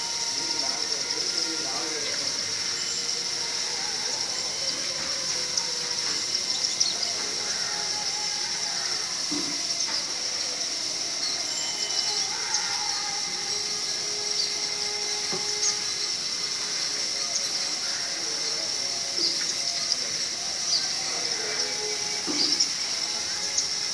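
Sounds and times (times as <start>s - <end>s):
sparrows chirping: 0.0s - 23.9s
steady high-pitched hiss: 0.0s - 23.9s.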